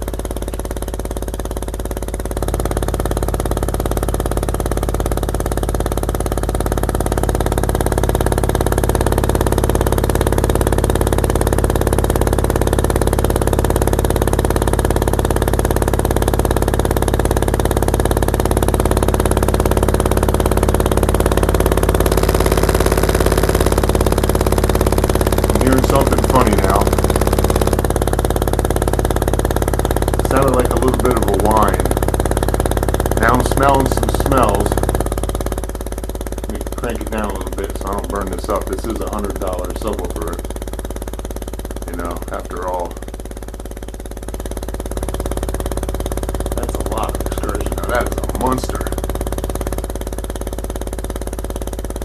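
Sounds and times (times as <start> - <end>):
subwoofer low test tone: 0.0 - 52.0.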